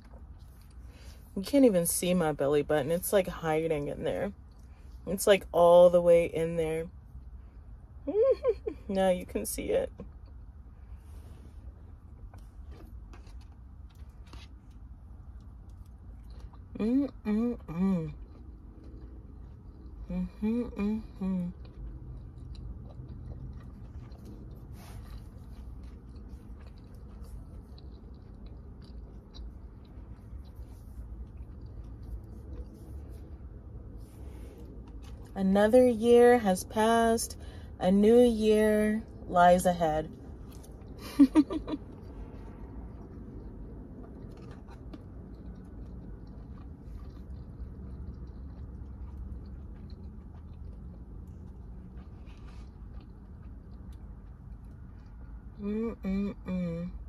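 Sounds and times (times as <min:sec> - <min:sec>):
person chewing food: 0:00.0 - 0:01.3, 0:10.0 - 0:35.4, 0:40.1 - 0:55.7
low hum: 0:00.0 - 0:57.0
low rumble: 0:03.6 - 0:57.0.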